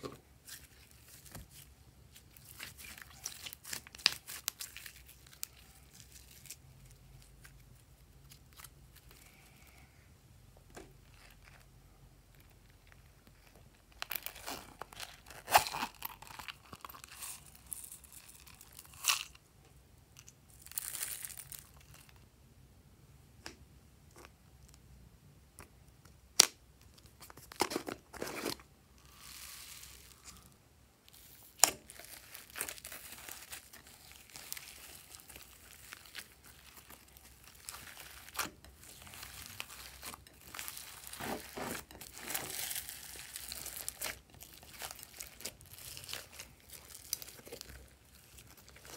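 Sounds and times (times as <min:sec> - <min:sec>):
slime crackling and crunching: 0:00.0 - 0:09.4, 0:12.4 - 0:19.4, 0:20.5 - 0:22.2, 0:29.0 - 0:30.4, 0:31.0 - 0:48.9
crinkly rustles: 0:00.0 - 0:09.5, 0:31.1 - 0:48.9.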